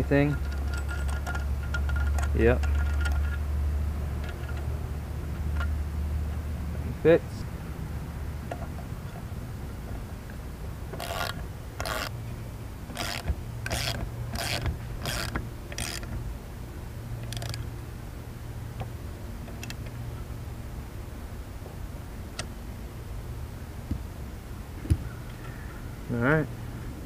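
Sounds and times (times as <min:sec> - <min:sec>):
ratchet wrench clicking: 0:11.0 - 0:12.1, 0:12.9 - 0:16.1, 0:17.2 - 0:17.6.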